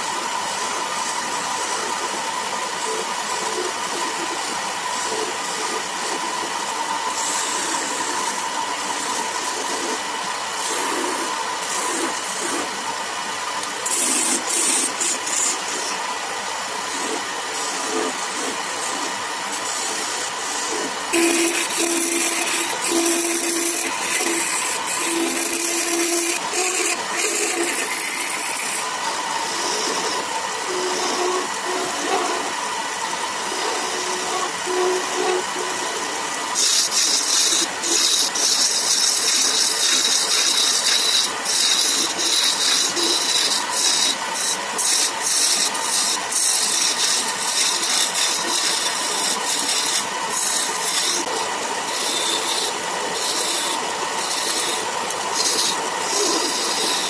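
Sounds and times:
gouge shearing wood shavings: 0:00.0 - 0:57.0
wood lathe running: 0:00.0 - 0:57.0.

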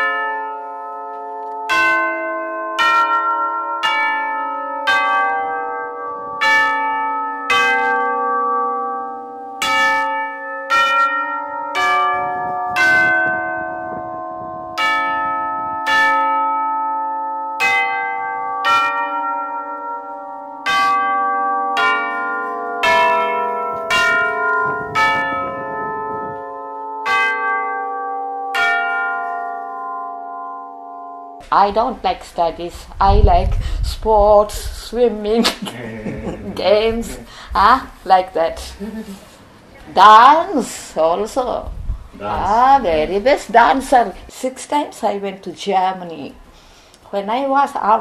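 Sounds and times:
tubular bells melody: 0:00.0 - 0:32.6, 0:42.2 - 0:45.2.

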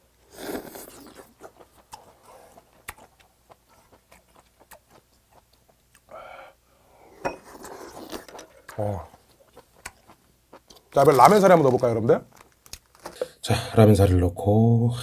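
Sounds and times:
person slurping food: 0:00.3 - 0:01.4
wet chewing: 0:00.3 - 0:06.1, 0:07.6 - 0:13.2.

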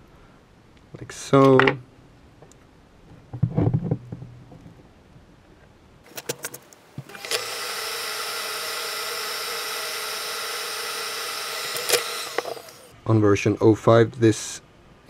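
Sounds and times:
small motor whirring: 0:07.1 - 0:12.9.

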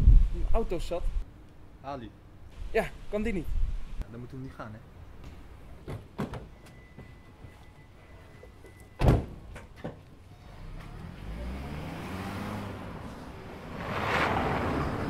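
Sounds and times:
car door slamming: 0:09.0 - 0:10.0
car engine pulling away: 0:10.3 - 0:15.0.

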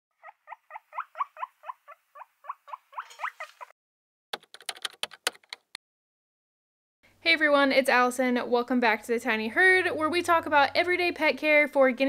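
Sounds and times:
guinea pig squeaking: 0:00.2 - 0:03.7
keyboard typing clicks: 0:04.4 - 0:05.8.

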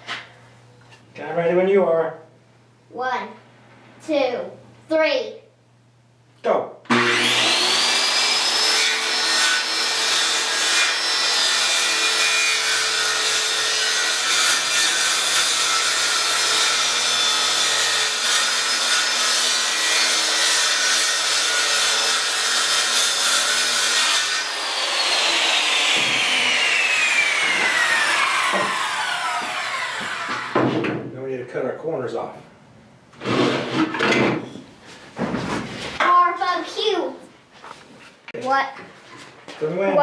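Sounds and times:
saw blade winding down: 0:06.9 - 0:09.9, 0:22.8 - 0:30.5
circular saw cutting wood: 0:06.9 - 0:30.6.

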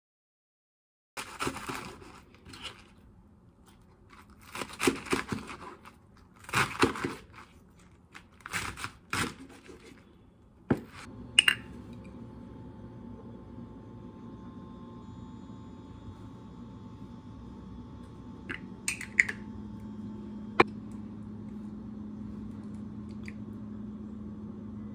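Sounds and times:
steady low hum: 0:09.4 - 0:24.9.

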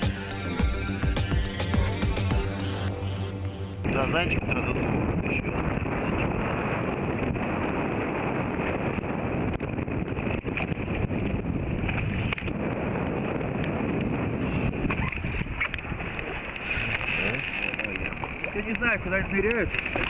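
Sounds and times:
wind buffeting microphone: 0:03.8 - 0:20.0
water sloshing against boat: 0:13.2 - 0:20.0.

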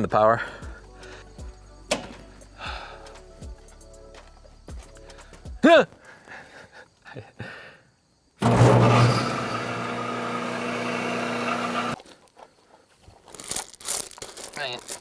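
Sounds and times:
electric motor humming and whirring: 0:08.4 - 0:12.0.

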